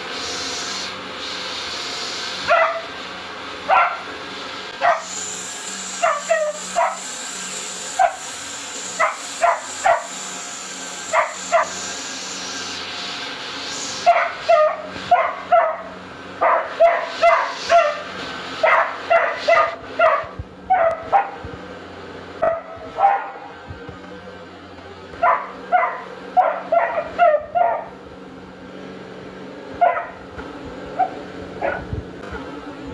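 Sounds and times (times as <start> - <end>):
vacuum cleaner humming: 0.0 - 32.9
puppy barking: 2.4 - 3.0, 3.7 - 4.1, 4.8 - 5.2, 6.0 - 7.1, 7.9 - 8.3, 9.0 - 10.2, 11.1 - 11.8, 14.0 - 21.4, 22.4 - 23.6, 25.2 - 28.0, 29.8 - 30.2, 31.0 - 31.9.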